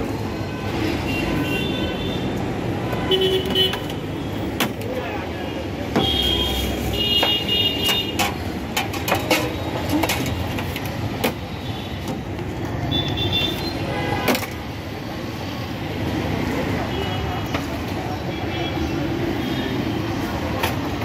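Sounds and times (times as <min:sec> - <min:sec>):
street traffic: 0:00.0 - 0:21.0
utensils and tins clinking: 0:08.0 - 0:11.0.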